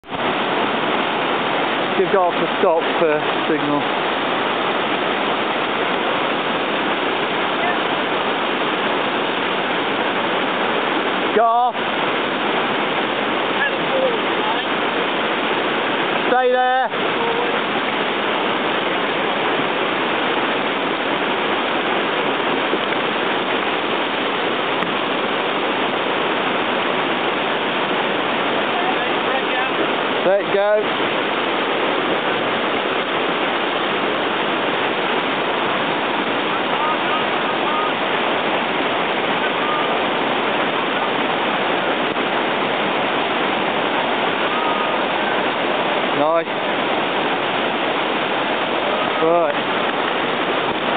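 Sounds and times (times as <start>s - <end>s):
whitewater rushing: 0.0s - 50.9s.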